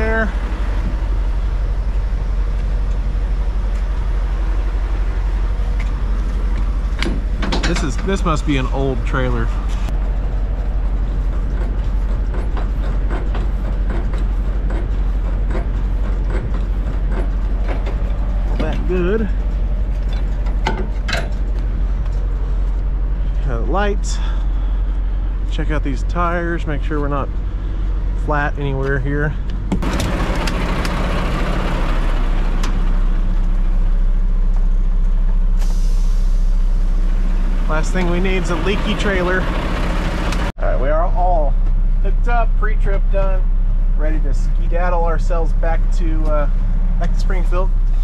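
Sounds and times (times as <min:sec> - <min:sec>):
diesel engine idling: 0:00.0 - 0:48.0
air hissing: 0:35.5 - 0:37.4.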